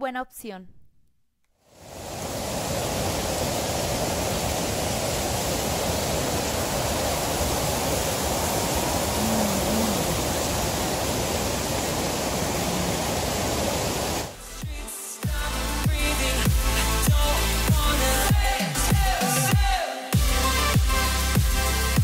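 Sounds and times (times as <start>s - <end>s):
waterfall rushing: 1.7s - 14.5s.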